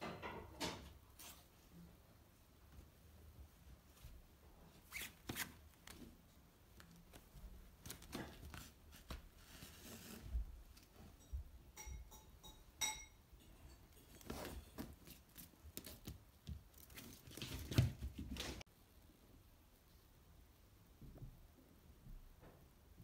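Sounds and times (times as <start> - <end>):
fabric rustling and scratching: 6.8 - 10.9, 14.1 - 16.1.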